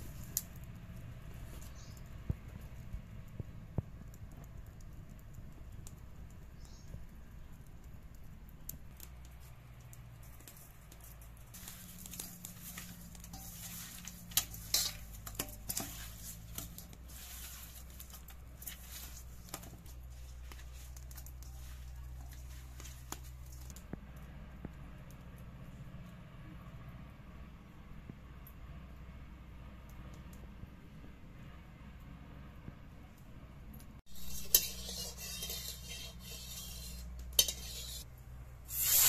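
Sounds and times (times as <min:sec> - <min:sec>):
hands handling wet fish: 0:10.2 - 0:23.7.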